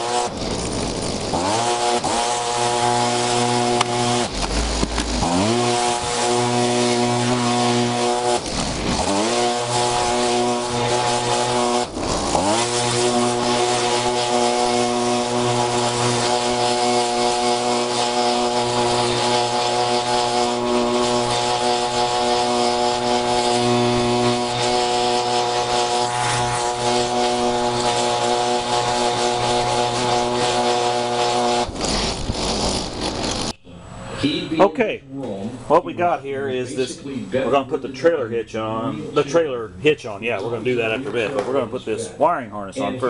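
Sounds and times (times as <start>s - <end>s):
leaf blower engine: 0.0s - 33.6s.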